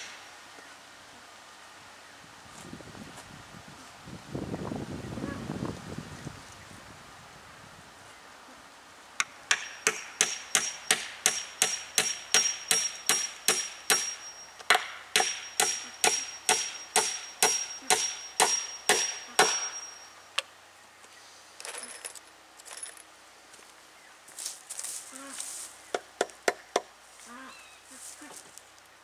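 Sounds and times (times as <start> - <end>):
hammer driving nail into wood: 9.2 - 19.7
thin ringing note: 14.0 - 14.7, 15.4 - 20.4.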